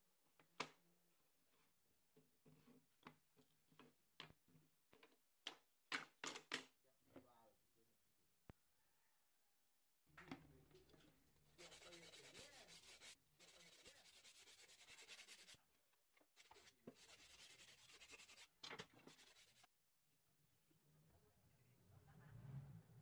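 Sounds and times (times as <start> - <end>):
wooden strips scraping: 16.4 - 18.4, 19.1 - 19.7.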